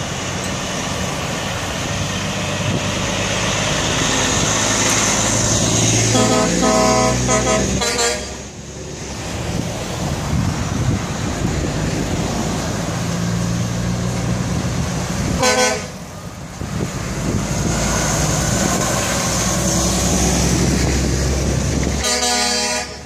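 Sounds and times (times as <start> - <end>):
diesel engine running: 0.0 - 23.0
passing traffic: 0.0 - 23.0
truck air horn blasts: 6.1 - 8.5, 15.4 - 16.0, 22.0 - 23.0.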